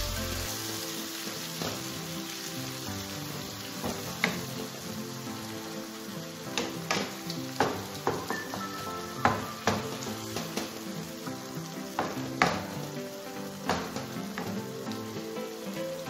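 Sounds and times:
chicken sizzling in a frying pan: 0.0s - 16.0s
light background music: 0.0s - 16.0s.

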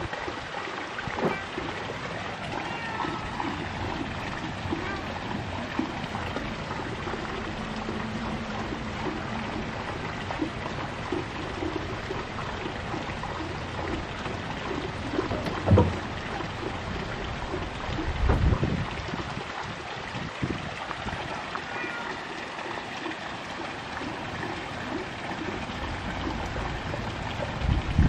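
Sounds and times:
short low thump: 15.3s - 16.2s.

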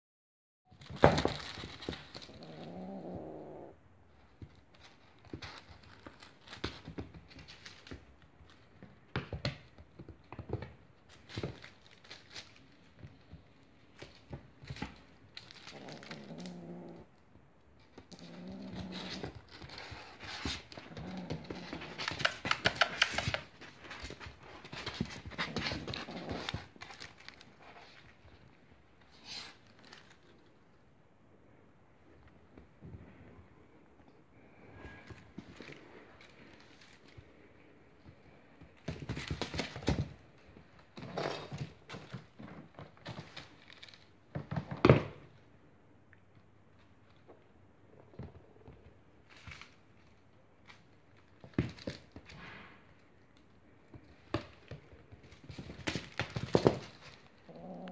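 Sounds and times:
claws scrabbling on wooden floor: 0.7s - 17.1s, 17.8s - 30.7s, 53.3s - 57.9s
kitten growling: 2.0s - 3.8s, 15.6s - 17.2s, 17.9s - 24.0s, 24.8s - 27.0s, 57.4s - 57.9s.

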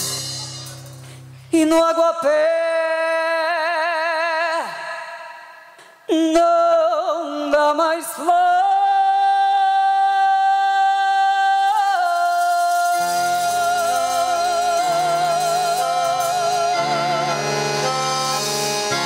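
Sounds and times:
instrumental chords: 13.1s - 19.0s.

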